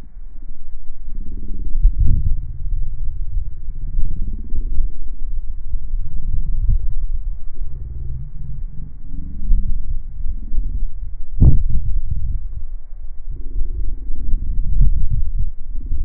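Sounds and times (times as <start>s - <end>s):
low rumble: 0.0s - 16.0s
heavy low thuds: 6.2s - 12.7s.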